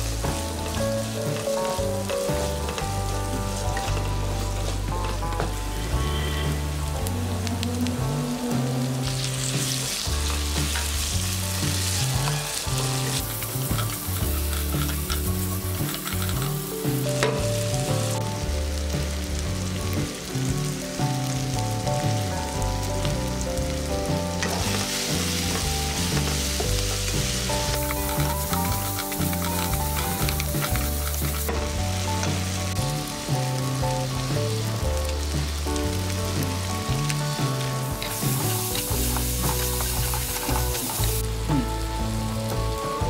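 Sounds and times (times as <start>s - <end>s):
vegetables sizzling in oil: 0.0s - 43.0s
spatula stirring: 9.2s - 17.4s, 24.4s - 31.6s.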